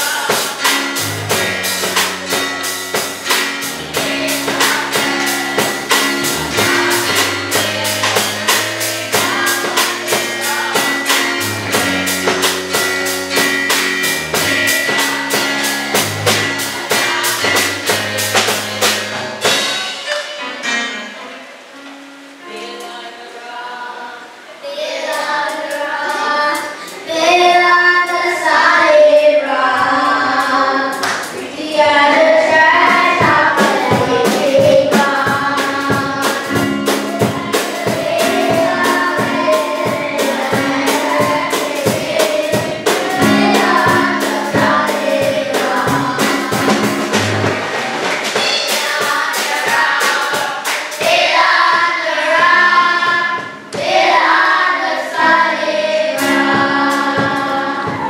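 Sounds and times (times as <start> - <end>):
steady beat of sharp strikes: 0.0 - 20.4, 30.9 - 55.5
children singing through microphones: 0.0 - 58.0.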